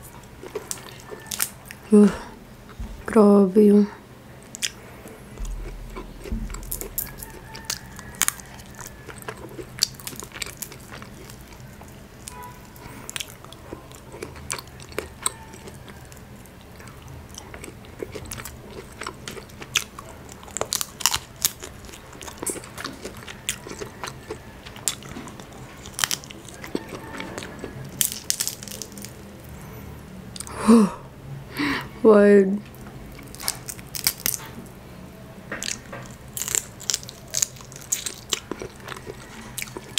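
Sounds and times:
chewing: 0.0 - 1.9, 4.4 - 29.6, 32.6 - 34.8, 35.5 - 39.9
crab shell cracking: 5.4 - 16.8, 17.4 - 29.3, 33.2 - 34.6, 35.5 - 39.9.

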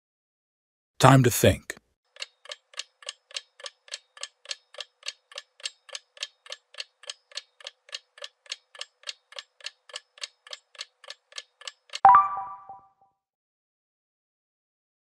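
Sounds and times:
clock ticking: 2.1 - 12.0.

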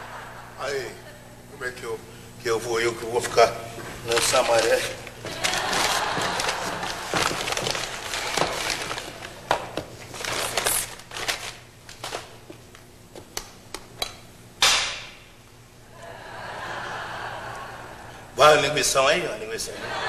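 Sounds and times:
paper wrapping crinkling: 3.2 - 13.4.

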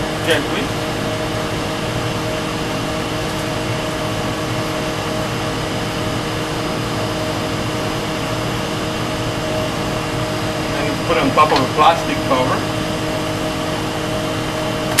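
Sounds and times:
mechanical hum: 0.0 - 15.0
steady tones: 8.6 - 14.0.

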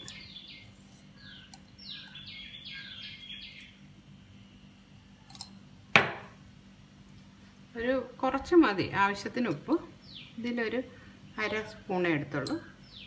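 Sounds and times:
bird chirping: 0.0 - 4.0, 10.0 - 10.6, 12.8 - 13.0
steady low hum: 0.0 - 13.0.

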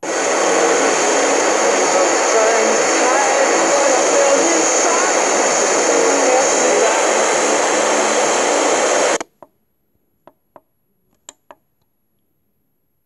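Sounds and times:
radio static hiss: 0.0 - 9.3.

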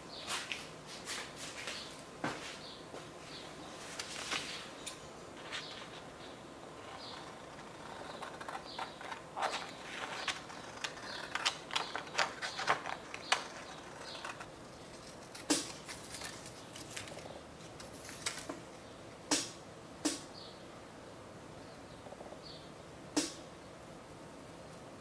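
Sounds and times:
scissors snipping paper: 7.1 - 18.5.

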